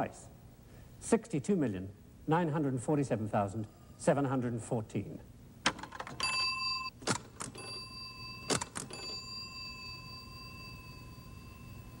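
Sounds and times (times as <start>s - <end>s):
small bell ringing: 6.2s - 6.9s, 7.6s - 12.0s.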